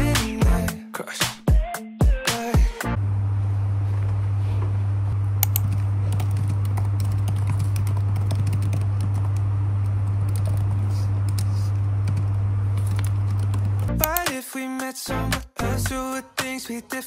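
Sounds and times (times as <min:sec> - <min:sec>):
steady low hum: 0:02.9 - 0:14.2
laptop keyboard typing: 0:05.4 - 0:14.4.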